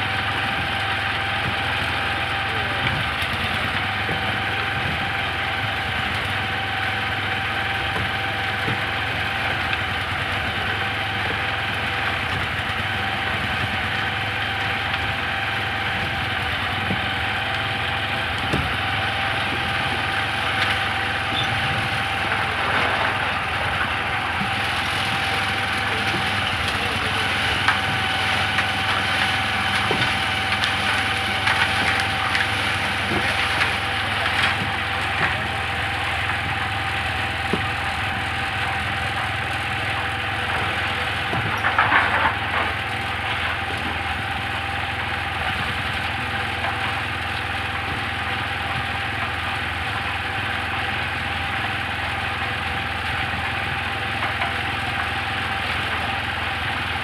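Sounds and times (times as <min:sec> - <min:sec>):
concrete mixer engine running: 0:00.0 - 0:57.0.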